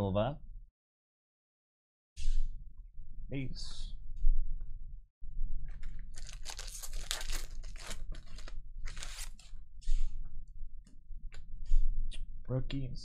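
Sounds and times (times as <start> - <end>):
foil wrapper tearing and crinkling: 5.7 - 9.5.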